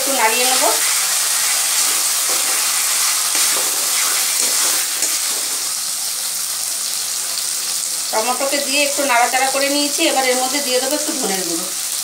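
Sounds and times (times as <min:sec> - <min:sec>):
food sizzling in oil: 0:00.0 - 0:12.0
spatula scraping a pan: 0:00.7 - 0:05.8.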